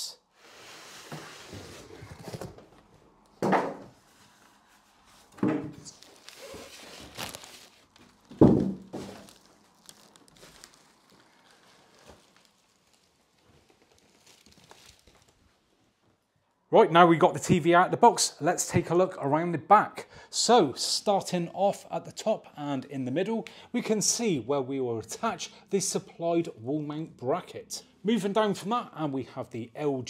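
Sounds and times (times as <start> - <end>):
cardboard packaging rustling: 3.9 - 16.0.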